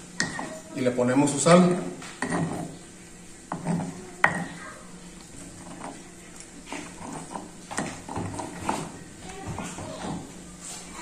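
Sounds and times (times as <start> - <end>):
stone pestle knocking and grinding: 2.2 - 2.7, 6.8 - 8.9.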